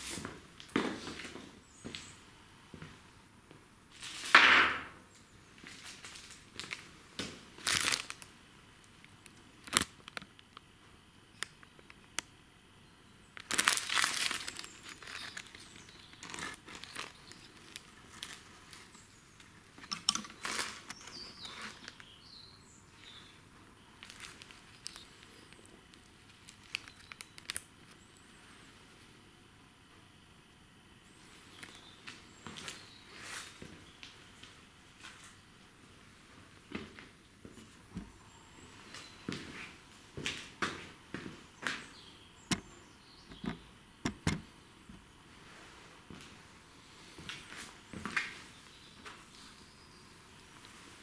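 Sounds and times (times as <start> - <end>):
packaging crinkling and rustling: 5.6 - 8.3, 9.6 - 10.6, 13.4 - 19.0, 19.8 - 22.2, 24.0 - 27.7.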